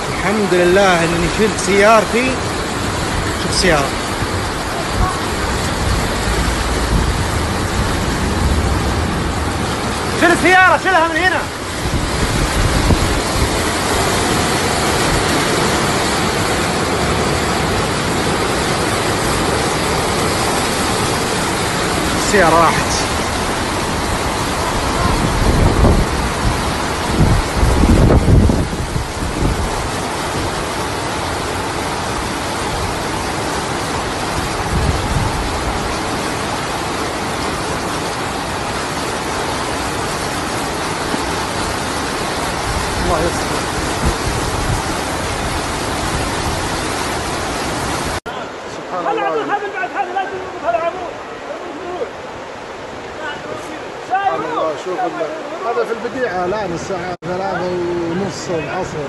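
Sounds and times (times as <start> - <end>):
floodwater rushing: 0.0 - 59.0
heavy rain: 0.0 - 59.0
low rumble: 5.4 - 10.1.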